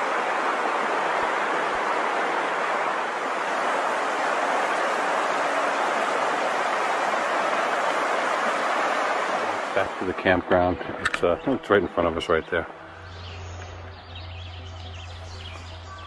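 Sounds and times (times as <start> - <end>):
stream water flowing: 0.0 - 16.0.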